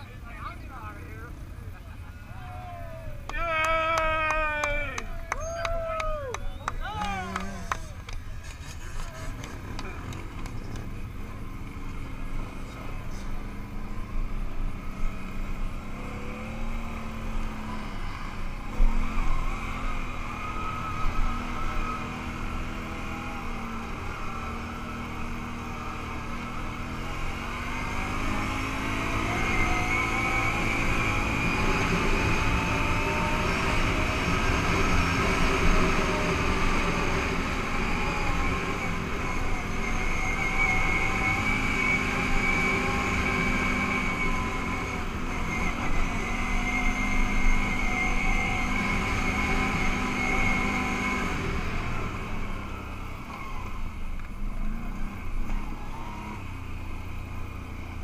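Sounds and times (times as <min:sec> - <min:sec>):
quad bike engine revving: 0:06.8 - 0:58.0.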